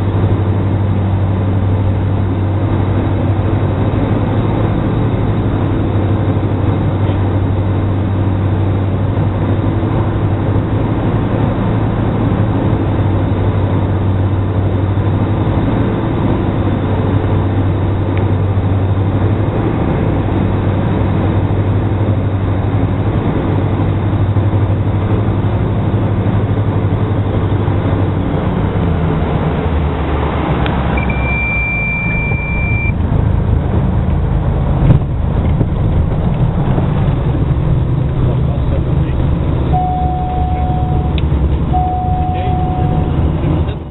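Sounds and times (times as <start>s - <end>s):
aircraft engines droning: 0.0s - 43.9s
steady high beep: 31.0s - 33.0s, 39.7s - 43.3s.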